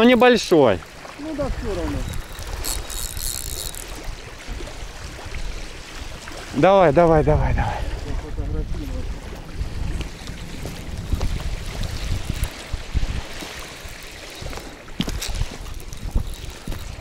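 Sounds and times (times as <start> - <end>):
small waves lapping on shore: 0.0 - 17.0
wind buffeting microphone: 0.9 - 17.0
fishing reel clicking and rattling: 1.6 - 4.3, 10.0 - 17.0.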